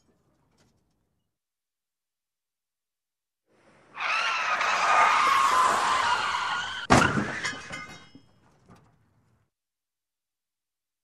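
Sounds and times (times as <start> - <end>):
car tyres screeching: 3.9 - 7.4
debris clattering: 6.9 - 9.1.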